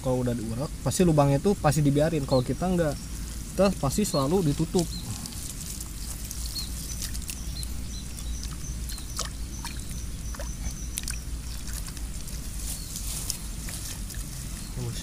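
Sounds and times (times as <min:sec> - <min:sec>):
hands squelching wet mud: 0:04.2 - 0:14.8.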